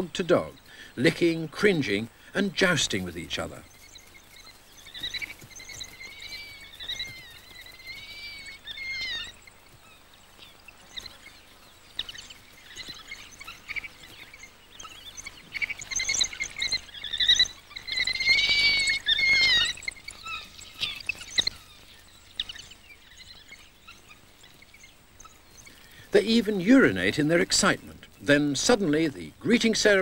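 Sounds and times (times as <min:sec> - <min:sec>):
wild dogs squealing: 0:07.9 - 0:09.4, 0:17.0 - 0:20.5.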